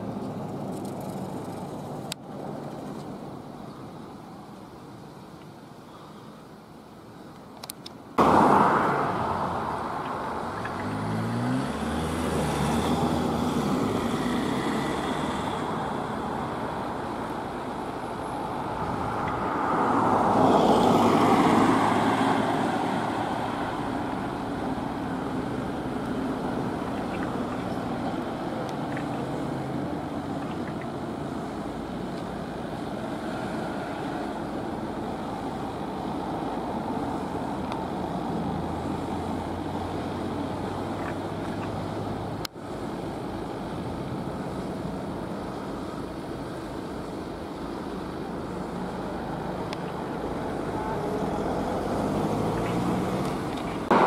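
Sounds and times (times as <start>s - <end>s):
road traffic hum: 0.0s - 54.0s
fire engine passing close: 48.0s - 54.0s.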